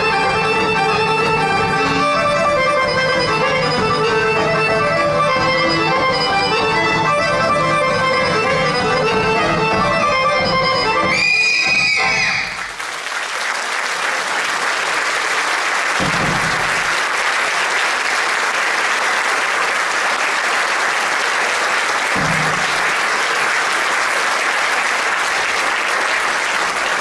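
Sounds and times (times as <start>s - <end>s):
audience applauding: 11.1s - 27.0s.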